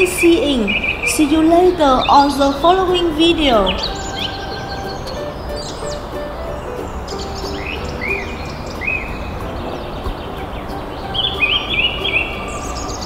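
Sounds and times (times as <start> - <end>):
birds chirping: 0.0 - 13.0
steady background hiss: 0.0 - 13.0.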